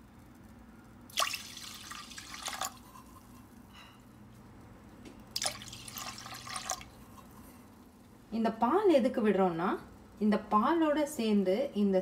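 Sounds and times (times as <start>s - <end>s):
water pouring into pot: 1.1s - 3.1s, 5.4s - 7.2s.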